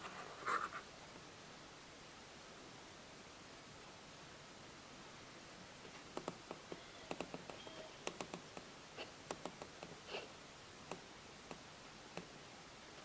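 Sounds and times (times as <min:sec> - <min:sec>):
faint clicks and taps: 0:05.8 - 0:10.0, 0:10.8 - 0:12.4.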